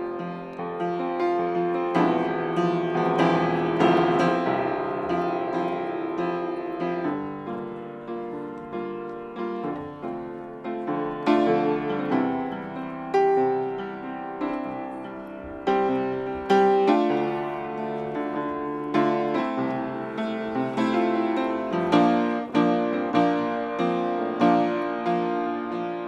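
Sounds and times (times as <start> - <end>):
upright piano playing: 0.0 - 26.0.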